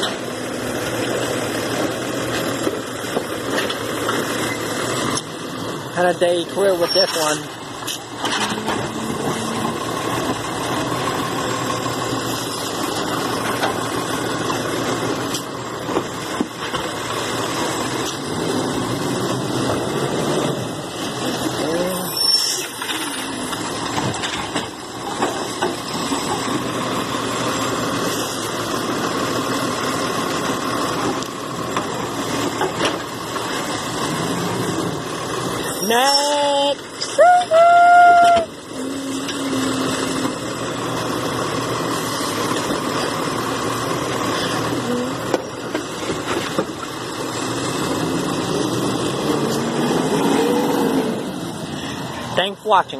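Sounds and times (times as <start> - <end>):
garbage truck engine running: 0.0 - 52.9
knocks and clanks of arm and carts: 0.9 - 5.4, 6.0 - 11.0, 12.5 - 18.4, 22.7 - 26.8, 30.9 - 34.1, 42.3 - 47.1.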